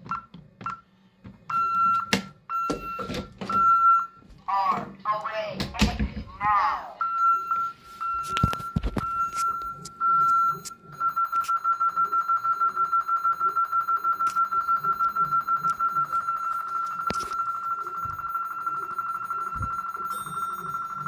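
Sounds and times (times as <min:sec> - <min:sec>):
alarm rapidly pulsing high tone: 0:09.1 - 0:21.0.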